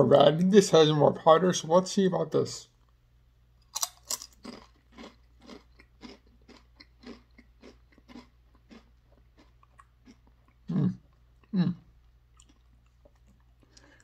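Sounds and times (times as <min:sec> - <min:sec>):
potato chip crunching: 0:03.7 - 0:11.6.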